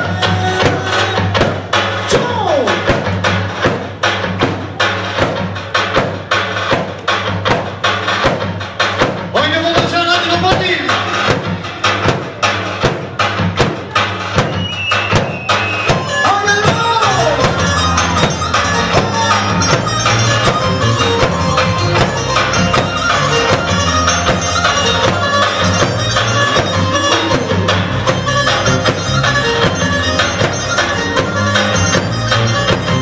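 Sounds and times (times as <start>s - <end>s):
steady drum beat: 0.0s - 33.0s
folk melody: 14.1s - 33.0s.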